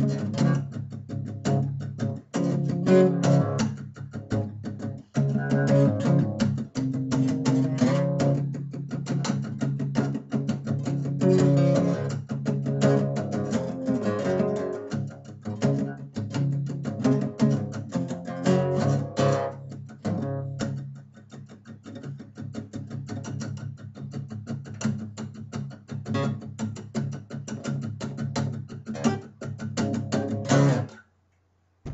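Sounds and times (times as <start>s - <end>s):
acoustic guitar strumming: 0.0s - 21.0s, 26.0s - 31.0s.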